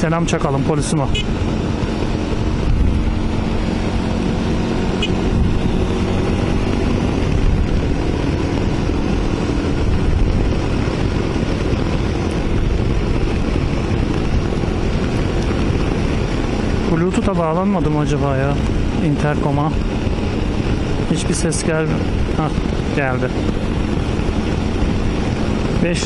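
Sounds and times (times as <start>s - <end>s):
motorcycle engine drone: 0.0s - 26.0s
wind rushing over microphone: 0.0s - 26.0s.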